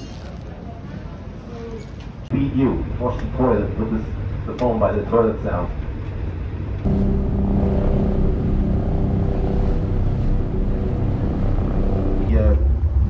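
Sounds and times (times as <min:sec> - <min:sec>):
vehicle engine running: 0:05.7 - 0:13.0.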